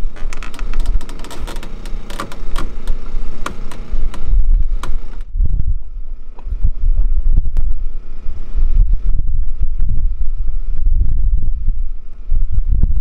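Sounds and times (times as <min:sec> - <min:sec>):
sailboat rigging clicking: 0:00.0 - 0:05.3
wind buffeting microphone: 0:03.2 - 0:13.0.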